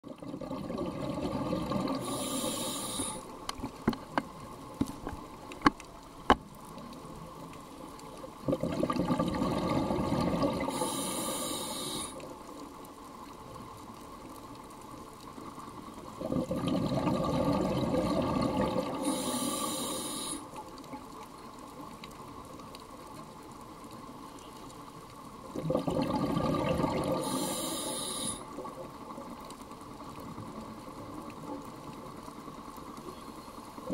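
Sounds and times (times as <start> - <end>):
exhaled bubbles underwater: 0.0 - 3.2, 8.4 - 12.2, 16.1 - 20.4, 25.5 - 29.4
regulator hiss: 1.9 - 3.5, 10.6 - 12.3, 18.9 - 20.6, 27.1 - 28.6.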